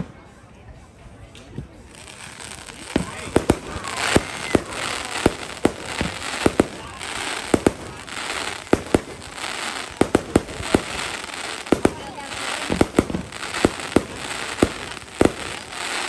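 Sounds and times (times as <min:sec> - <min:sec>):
crackling hiss: 0:01.9 - 0:16.0
fireworks bangs: 0:02.1 - 0:16.0.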